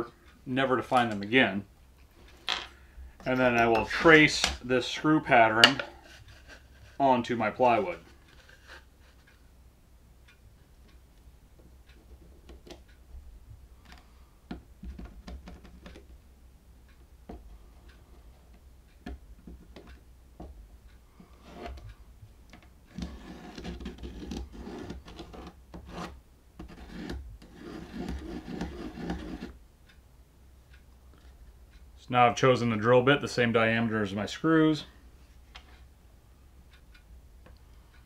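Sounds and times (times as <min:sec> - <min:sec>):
pencil scratching on plywood: 0:21.3 - 0:21.9, 0:22.9 - 0:29.6.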